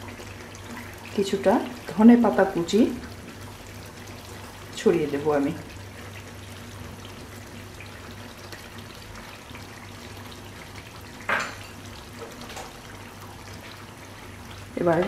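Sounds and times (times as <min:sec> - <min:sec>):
curry sizzling in a frying pan: 0:00.0 - 0:15.0.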